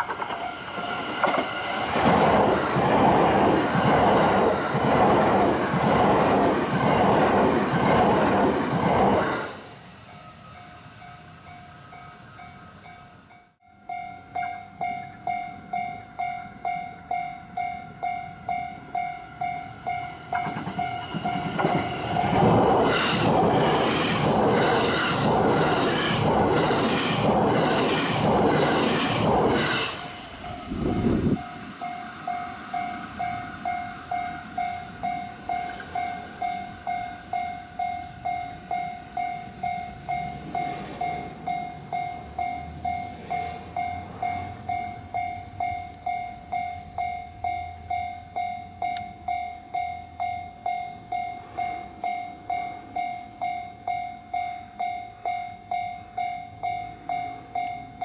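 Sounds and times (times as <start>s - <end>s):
train wheels clattering: 0.0s - 9.5s, 18.0s - 55.0s.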